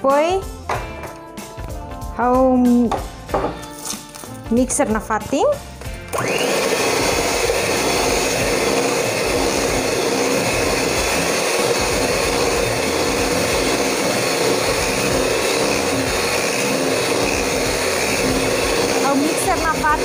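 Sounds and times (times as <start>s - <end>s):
electric hand mixer whipping batter: 5.8s - 20.0s.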